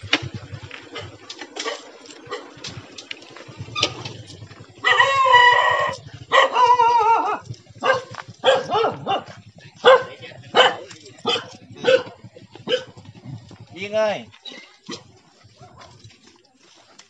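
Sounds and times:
small dog barking: 4.8s - 13.0s.

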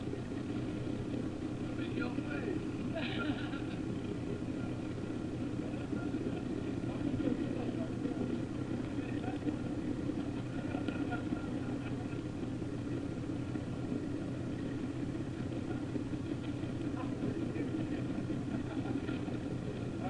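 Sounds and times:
boat engine droning: 0.0s - 20.0s
water rushing along hull: 0.0s - 20.0s.

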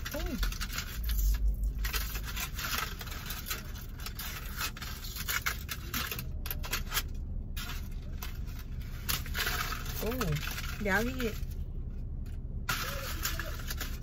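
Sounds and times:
crunchy chunks scraping and rustling: 0.0s - 14.0s.

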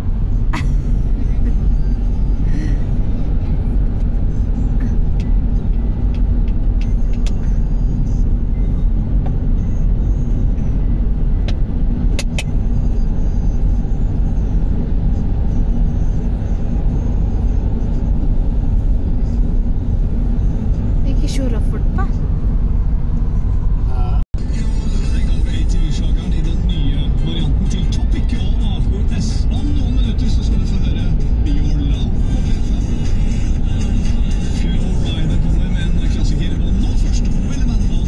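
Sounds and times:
road and engine noise in car: 0.0s - 38.0s.

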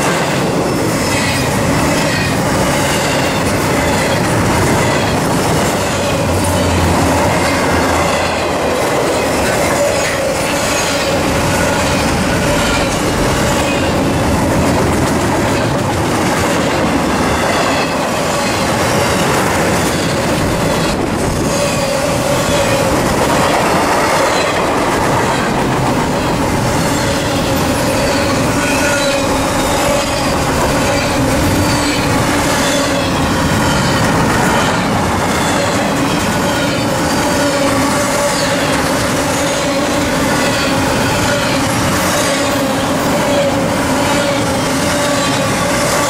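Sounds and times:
train wheels rolling over rails: 0.0s - 46.0s
wheels squealing: 17.3s - 46.0s.

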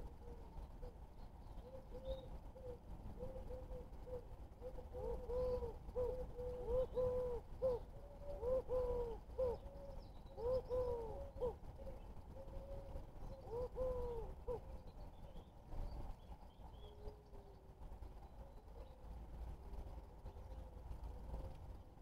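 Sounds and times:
dove cooing: 0.0s - 1.0s, 1.6s - 14.8s.

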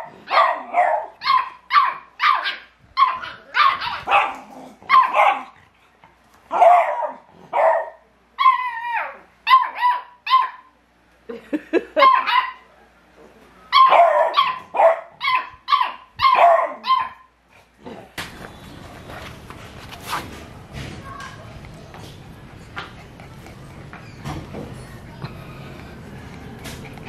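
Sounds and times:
puppies barking and yapping: 0.0s - 5.6s, 13.7s - 17.3s, 21.2s - 27.0s.

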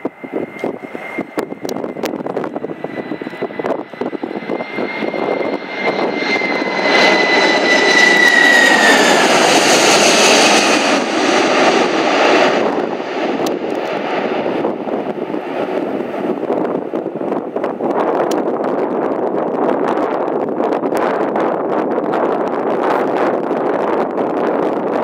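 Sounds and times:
jet engines passing overhead: 0.0s - 25.0s.

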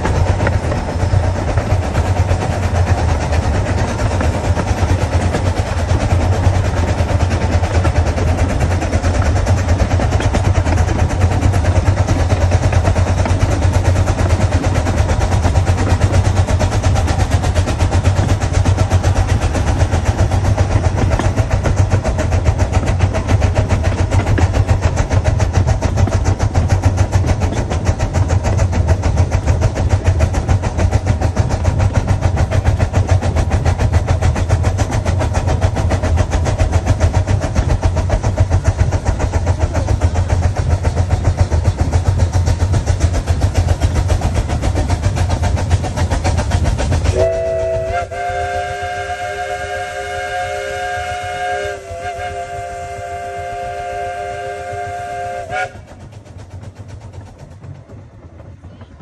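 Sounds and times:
miniature steam train rumble: 0.0s - 59.0s
steam whistle chord: 47.1s - 55.8s.

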